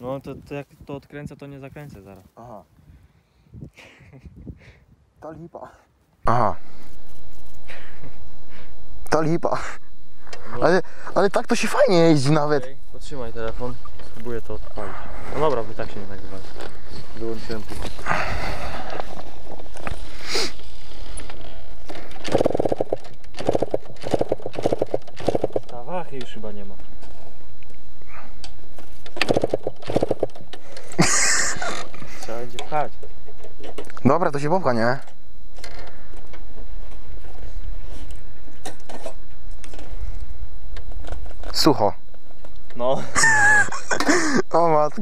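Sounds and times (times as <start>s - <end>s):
wind rumble on microphone: 2.8s - 5.1s
motorcycle engine cranking and coughing: 21.2s - 25.7s, 28.1s - 32.3s, 43.3s - 44.5s.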